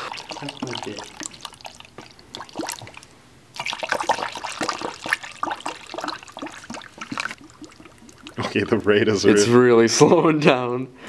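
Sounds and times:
water pouring into funnel: 0:00.0 - 0:09.5.

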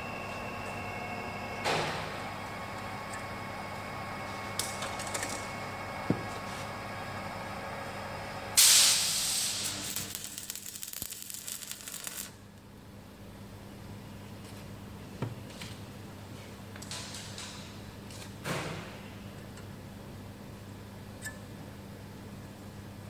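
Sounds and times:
arc welding hiss and crackle: 0:08.6 - 0:12.6.

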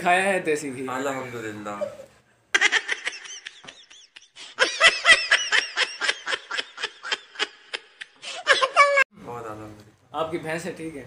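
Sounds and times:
men laughing: 0:02.6 - 0:09.0.

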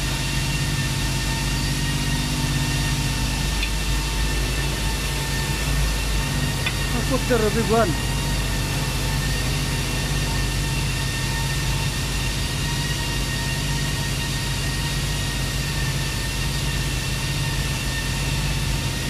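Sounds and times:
high-pitched machine whine: 0:00.0 - 0:19.0
machinery low hum: 0:00.0 - 0:19.0.

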